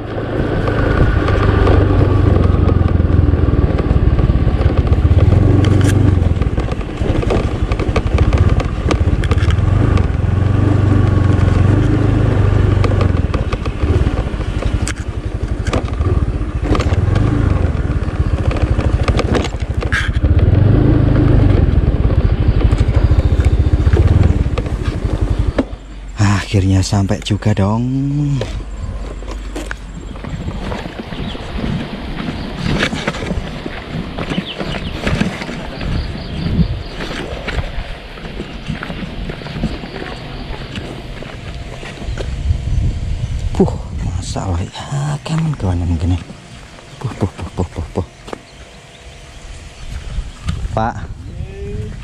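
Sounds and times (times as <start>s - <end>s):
scooter engine running: 0.0s - 52.0s
knocks and rattles: 0.7s - 10.3s.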